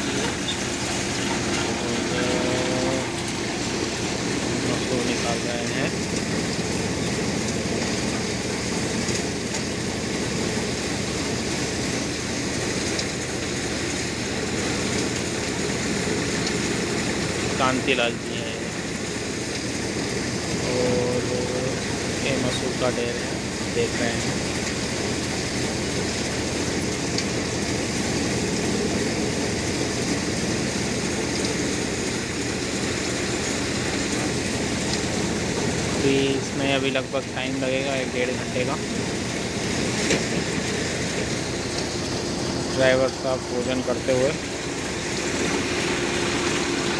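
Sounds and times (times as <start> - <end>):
threshing machine running: 0.0 - 46.9.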